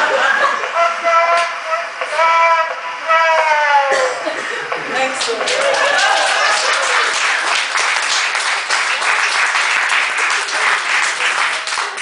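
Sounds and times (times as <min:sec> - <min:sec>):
people applauding: 0:04.8 - 0:12.0.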